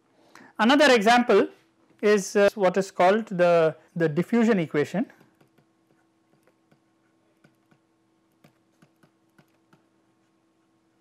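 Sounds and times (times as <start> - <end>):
steady faint hum: 0.0 - 11.0
stylus tapping on pen tablet: 5.1 - 9.9.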